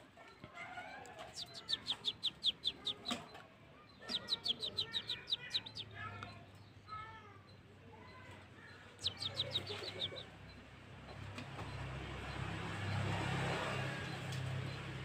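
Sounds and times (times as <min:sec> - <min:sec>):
bird twittering chirps: 0:01.3 - 0:11.2
bird singing high slurred notes: 0:01.4 - 0:03.2, 0:04.0 - 0:06.1, 0:09.0 - 0:10.3.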